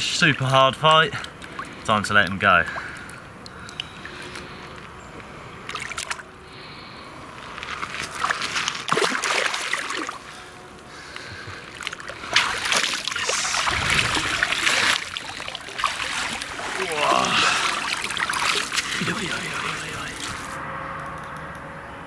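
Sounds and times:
legs wading through shallow water: 1.1s - 20.6s
fish splashing in water: 5.6s - 6.7s, 7.7s - 10.6s, 11.3s - 20.6s.

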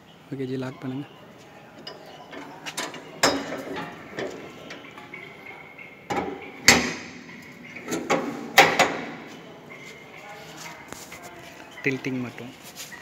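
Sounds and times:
metal parts clanking: 1.8s - 9.5s.

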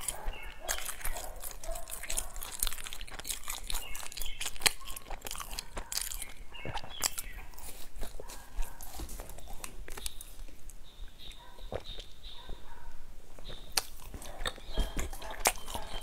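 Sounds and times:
person chewing crunchy pastry: 0.0s - 16.0s.

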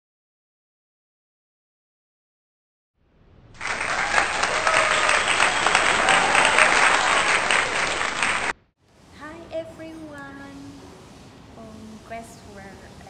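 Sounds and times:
audience clapping: 3.6s - 8.6s.

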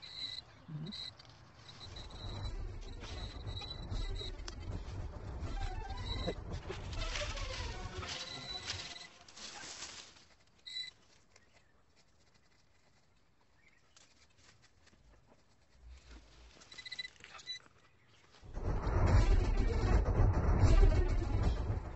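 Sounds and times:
short high squeaks: 0.0s - 4.3s, 7.2s - 9.6s, 10.6s - 11.0s, 16.7s - 17.6s
gloved hand brushing earth: 6.6s - 15.0s.

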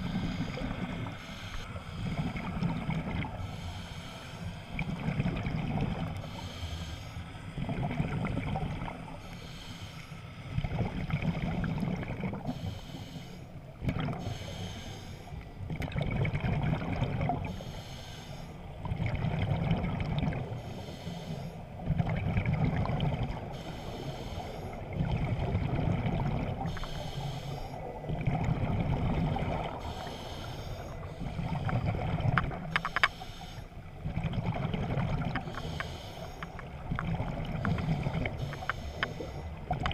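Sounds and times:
exhaled bubbles rumbling: 0.0s - 1.2s, 1.8s - 3.5s, 4.7s - 6.3s, 7.5s - 9.2s, 10.5s - 12.6s, 13.7s - 14.4s, 15.6s - 17.5s, 18.7s - 20.7s, 21.7s - 23.6s, 24.8s - 27.0s, 27.7s - 32.8s, 33.8s - 35.8s, 36.5s - 39.9s
regulator hissing on inhalation: 35.5s - 36.5s.

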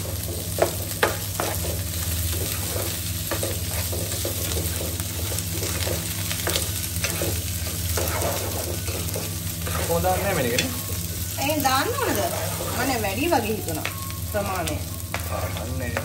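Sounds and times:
food sizzling in oil: 0.0s - 16.0s
spatula scraping and tapping pan: 0.2s - 11.2s.

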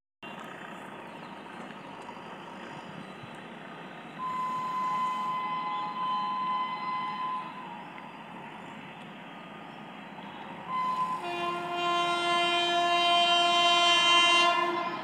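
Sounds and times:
train horn blast: 4.2s - 7.8s, 10.6s - 15.0s.

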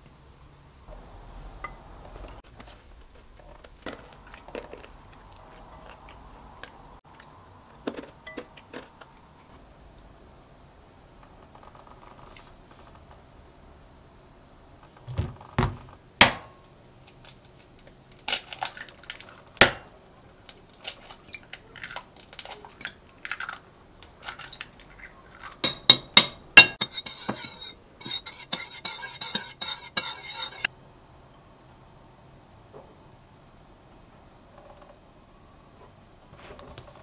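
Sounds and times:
eggs cracking into bowl: 20.8s - 26.1s
metal utensil beating eggs: 25.5s - 30.7s.

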